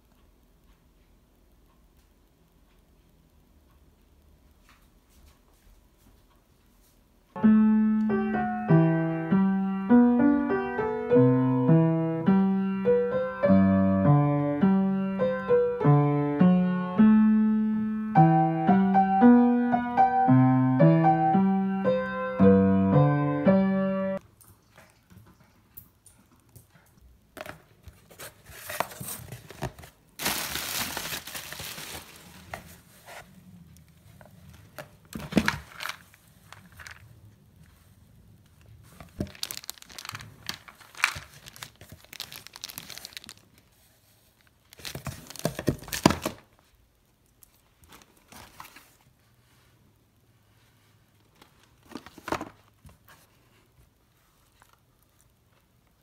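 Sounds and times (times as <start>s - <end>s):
upright piano melody: 7.4s - 24.2s.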